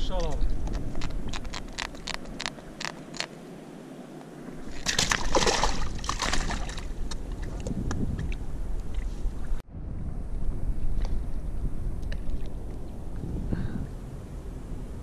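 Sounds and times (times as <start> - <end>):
water splashing and sloshing: 0.0 - 9.6.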